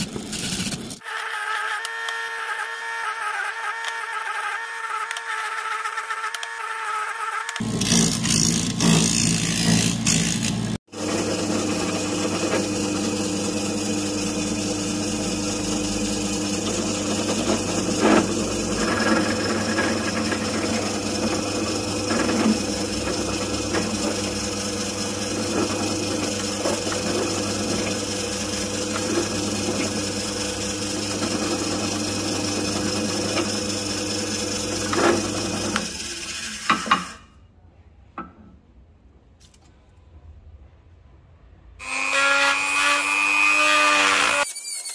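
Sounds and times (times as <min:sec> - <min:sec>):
drill boring through metal: 0:07.5 - 0:37.2, 0:41.8 - 0:44.9
drill press motor running: 0:07.5 - 0:37.2
metal grinding on spinning disc: 0:07.6 - 0:37.2.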